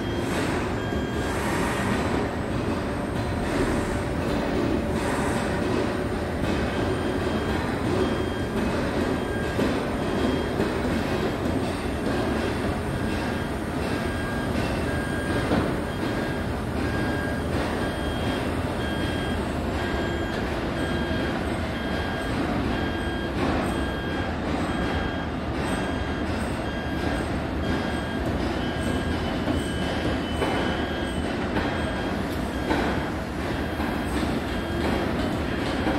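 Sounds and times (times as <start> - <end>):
crane engine running: 0.0 - 35.9
electronic warning beeper: 11.6 - 35.2.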